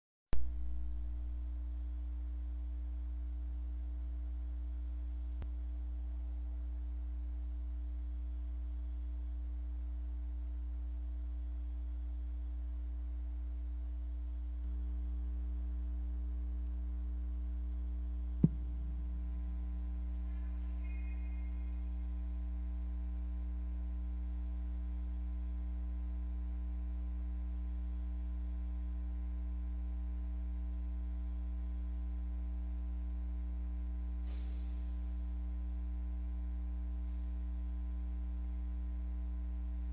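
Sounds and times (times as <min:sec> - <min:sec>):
electrical mains hum: 0:00.3 - 0:39.9
short knock: 0:18.4 - 0:18.7
pop: 0:18.4 - 0:18.9.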